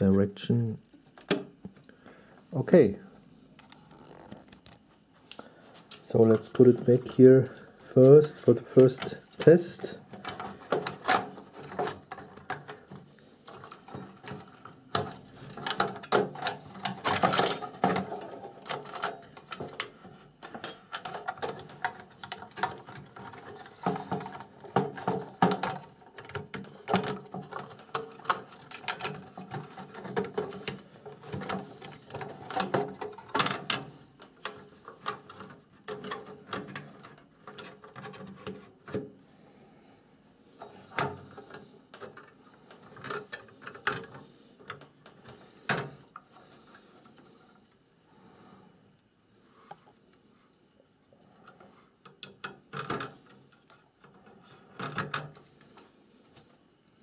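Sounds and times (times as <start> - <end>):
hands handling circuit boards: 5.7 - 39.1.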